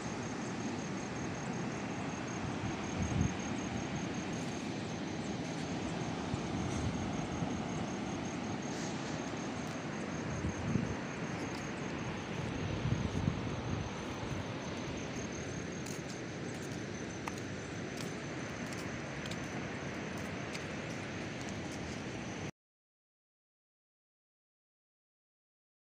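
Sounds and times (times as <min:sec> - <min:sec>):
surf hissing on beach: 0:00.0 - 0:22.4
wind buffeting microphone: 0:02.5 - 0:03.9, 0:10.2 - 0:15.8.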